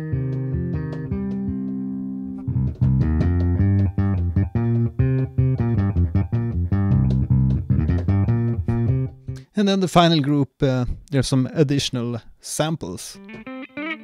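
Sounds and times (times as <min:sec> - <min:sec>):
electronic bass notes: 0:00.0 - 0:09.4.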